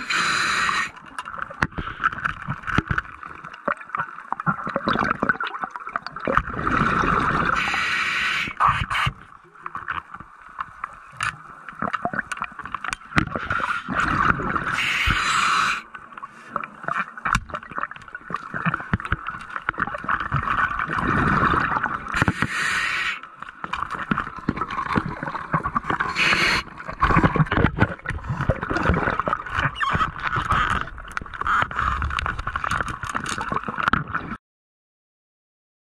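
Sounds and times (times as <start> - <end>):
underwater hiss with small clicks: 0.0 - 1.0, 7.6 - 9.4, 14.7 - 15.9, 22.2 - 23.3, 25.9 - 26.7.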